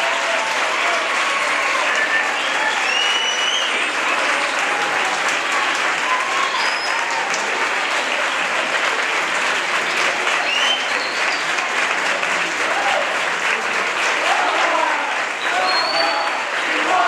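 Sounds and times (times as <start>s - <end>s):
audience applauding: 0.0s - 17.0s
whoops: 6.0s - 7.4s.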